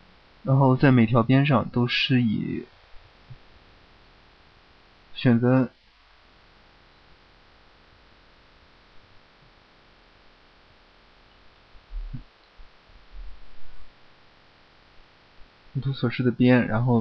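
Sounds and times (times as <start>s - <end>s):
microphone hum and hiss: 0.0s - 17.0s
low thumps: 11.9s - 14.0s.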